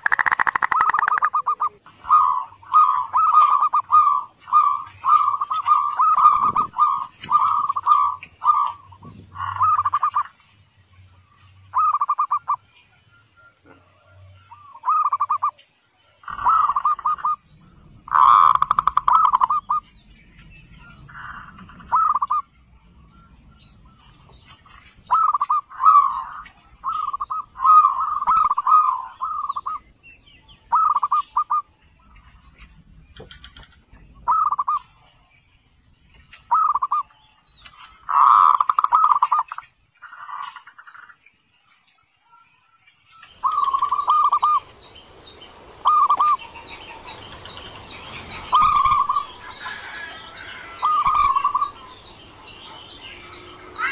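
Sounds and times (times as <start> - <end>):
dove cooing call: 0.0 - 10.4, 11.7 - 12.7, 13.4 - 15.6, 16.2 - 19.9, 20.8 - 22.5, 25.0 - 29.9, 30.6 - 31.7, 33.3 - 35.0, 36.5 - 37.1, 38.0 - 40.6, 43.3 - 53.9.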